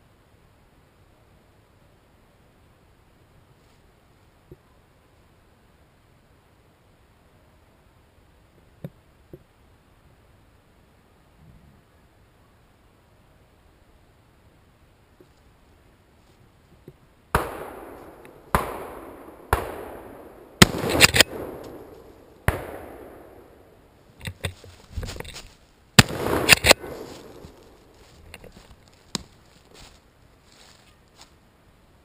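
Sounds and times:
shotgun shots echoing: 17.3 - 23.9, 26.0 - 27.8.

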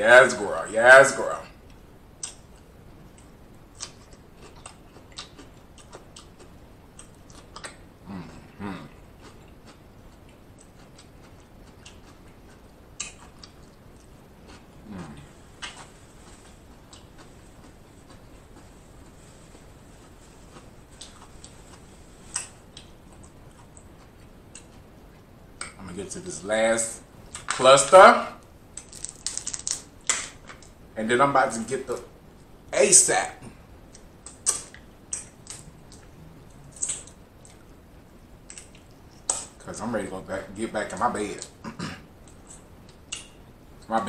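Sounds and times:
man chewing with mouth clicks: 1.6 - 25.8, 33.8 - 39.6, 41.4 - 43.9
man humming low: 8.0 - 9.0, 35.7 - 36.8.

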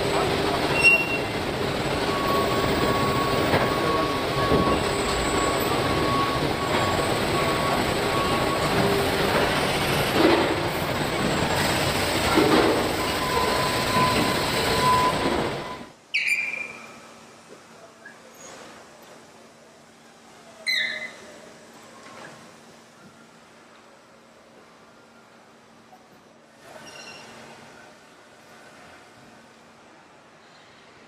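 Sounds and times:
machine whining tones: 0.6 - 11.7
robot high squeak: 0.7 - 1.3, 16.1 - 17.0, 20.6 - 21.3, 26.8 - 27.4.

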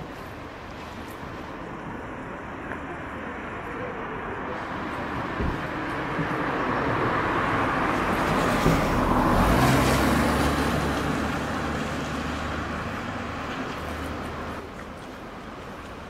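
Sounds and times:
vehicle passing: 4.5 - 14.6.

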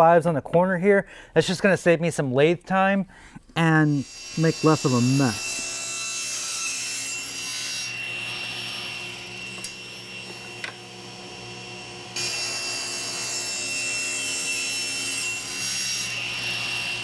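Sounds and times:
power saw cutting wood: 3.6 - 17.0.

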